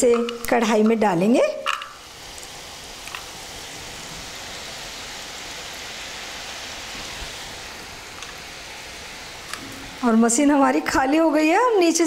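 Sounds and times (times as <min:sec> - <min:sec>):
oil sizzling while deep-frying: 0:00.0 - 0:12.0.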